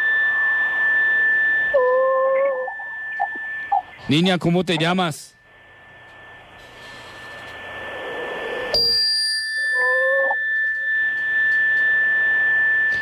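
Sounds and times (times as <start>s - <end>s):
high-pitched electronic whine: 0.0s - 13.0s
hissing static: 2.4s - 8.8s.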